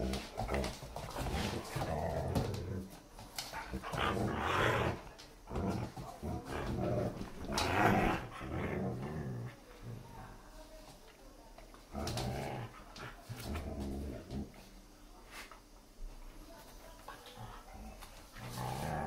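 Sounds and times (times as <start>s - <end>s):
dogs growling in play: 0.0s - 10.4s, 11.8s - 14.8s, 17.2s - 19.0s.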